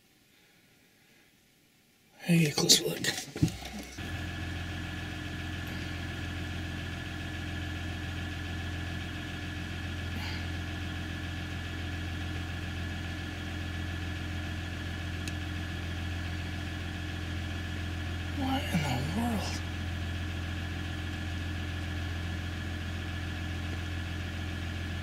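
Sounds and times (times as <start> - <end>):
low mechanical hum: 2.2 - 25.0
constant tones: 2.6 - 4.9.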